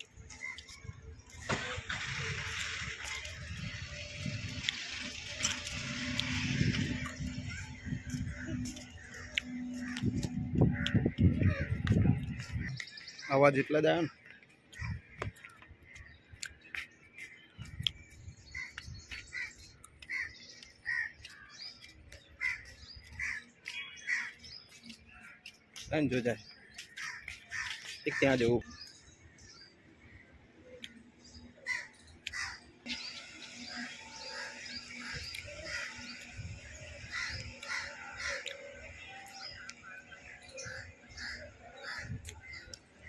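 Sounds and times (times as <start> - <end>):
small birds chirping: 0.0 - 43.0
crows cawing: 18.6 - 21.6, 22.4 - 24.4, 26.9 - 28.3, 31.6 - 32.6, 34.2 - 36.1, 37.1 - 38.7, 40.6 - 42.6.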